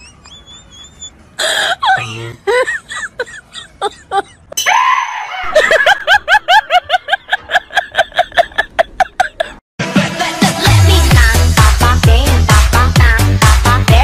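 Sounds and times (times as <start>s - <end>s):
woman screaming: 4.6s - 5.6s.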